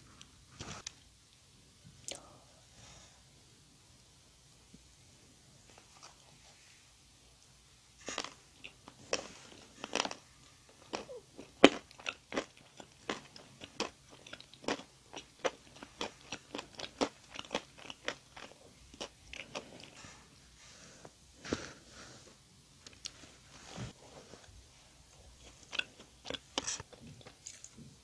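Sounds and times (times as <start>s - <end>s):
doughnut being chewed: 8.0s - 20.1s, 25.2s - 27.8s.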